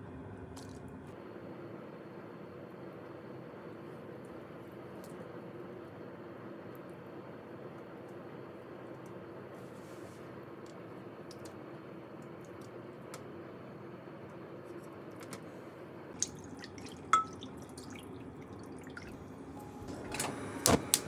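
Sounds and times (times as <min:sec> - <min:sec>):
soft drips and ticks: 0:10.6 - 0:11.6, 0:16.2 - 0:19.2.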